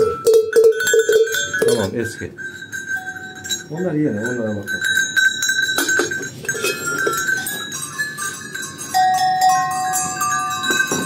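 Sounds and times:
metal bells clanking: 0.0s - 11.0s
bell ringing held note: 2.4s - 11.0s.

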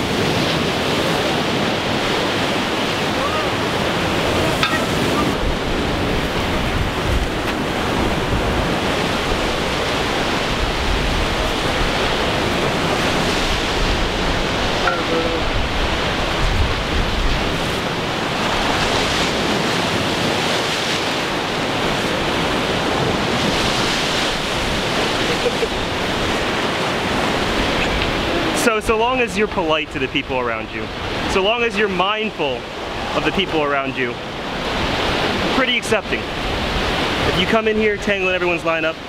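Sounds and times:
wind buffeting microphone: 0.0s - 29.8s
ocean surf breaking: 0.0s - 39.0s.

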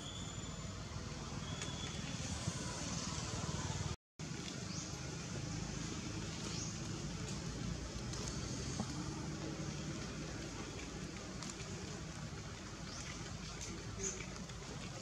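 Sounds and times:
faint high chirps: 0.0s - 0.8s.

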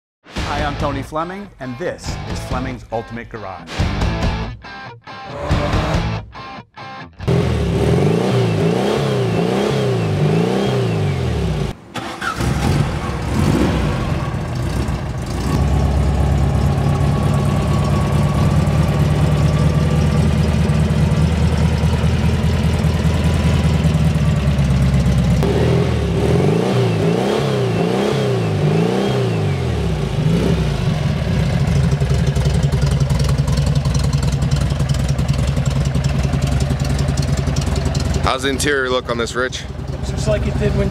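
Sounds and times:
car engine revving: 7.2s - 40.9s.

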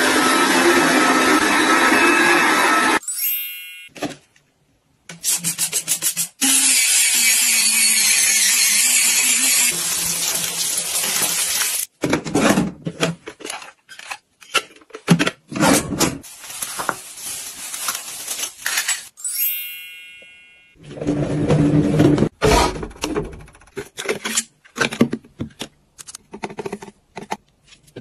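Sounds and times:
electric brush scrubbing: 0.0s - 3.0s, 6.4s - 11.9s.

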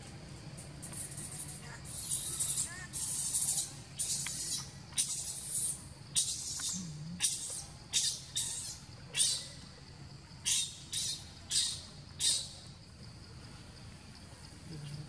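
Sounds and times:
baby monkey screaming: 1.8s - 9.5s, 10.4s - 12.5s.

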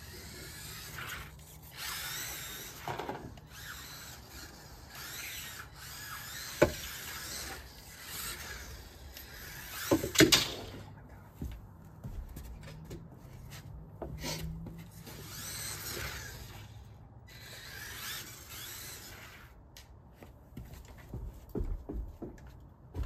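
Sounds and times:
small electric motor whining: 0.0s - 10.8s, 14.2s - 19.6s
toy car clattering on wooden ramp: 0.1s - 10.9s, 15.0s - 19.4s.

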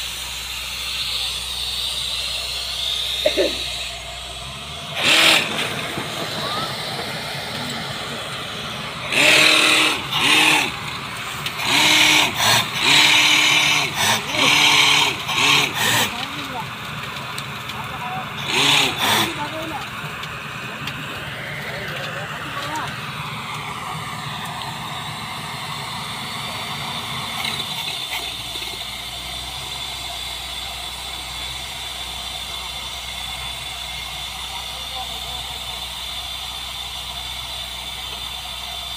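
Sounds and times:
high hiss: 0.0s - 16.0s
drilling rig hiss and whine: 0.0s - 38.9s.

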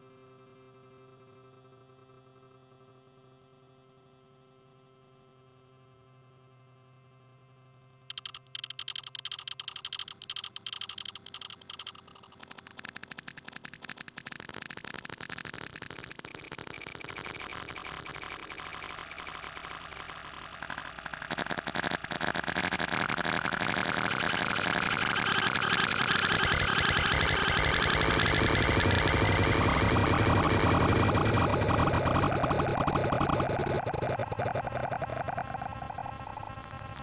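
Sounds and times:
faint steady tones: 8.1s - 37.0s
harsh crackling distorted noise: 8.1s - 37.0s.

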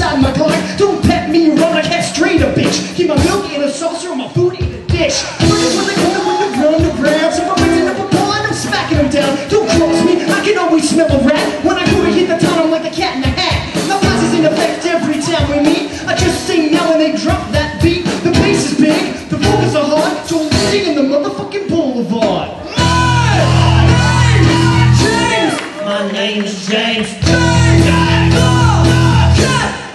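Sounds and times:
drum kit: 0.0s - 25.7s, 27.0s - 29.9s
electric bass: 5.2s - 12.6s, 13.3s - 16.6s, 17.5s - 20.8s, 22.7s - 25.5s, 27.2s - 29.9s
fiddle melody: 5.4s - 19.9s.

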